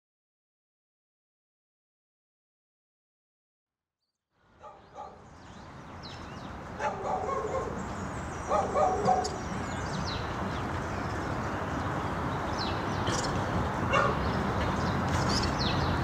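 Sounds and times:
dog barking: 0:04.6 - 0:05.2, 0:06.8 - 0:07.8, 0:08.5 - 0:09.4, 0:13.9 - 0:14.2
birds chirping: 0:04.6 - 0:16.0.

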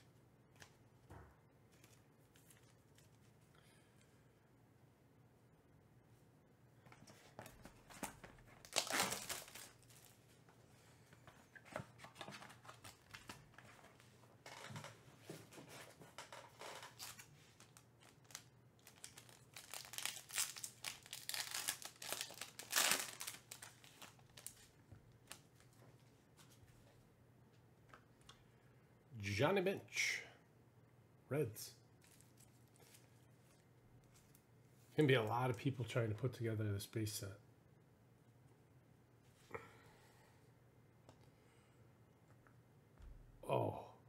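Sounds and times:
foil wrapper crinkling and tearing: 0:08.6 - 0:10.2, 0:16.6 - 0:25.5.

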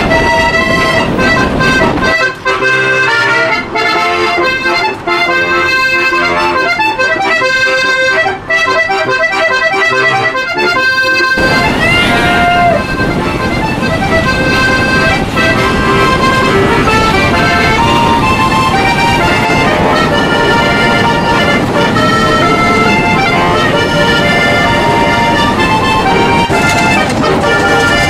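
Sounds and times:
button accordion folk tune: 0:00.0 - 0:28.0
train rumble: 0:00.0 - 0:28.0
rising whistle toot: 0:11.4 - 0:13.6.

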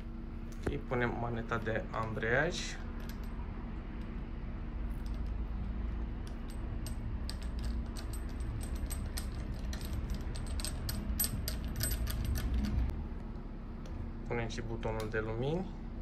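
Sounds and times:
steady low hum: 0:00.0 - 0:16.0
small metal parts clicking: 0:02.9 - 0:04.1, 0:04.9 - 0:12.9.

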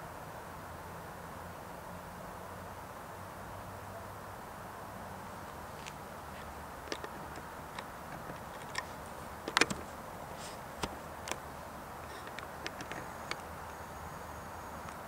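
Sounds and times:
rail yard low hum: 0:04.2 - 0:15.0
sharp clicks and ticks: 0:06.9 - 0:09.9, 0:10.6 - 0:13.8.

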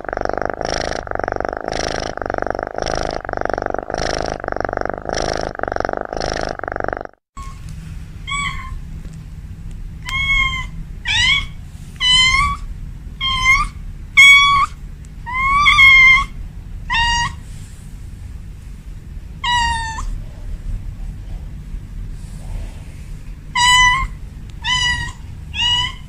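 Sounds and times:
low steady rumble: 0:00.0 - 0:26.0
kitten meowing: 0:08.3 - 0:08.8, 0:10.0 - 0:12.6, 0:19.4 - 0:20.1, 0:23.6 - 0:26.0.

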